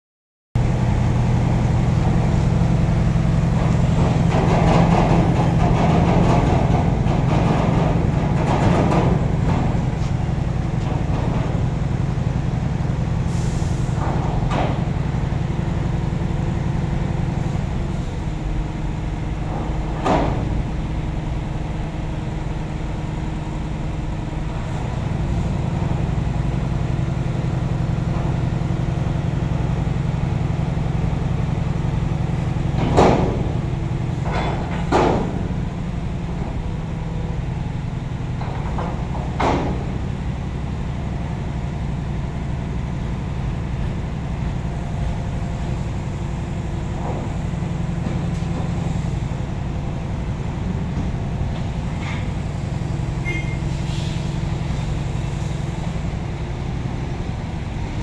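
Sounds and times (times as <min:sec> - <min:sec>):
diesel engine idling: 0:00.6 - 0:58.0.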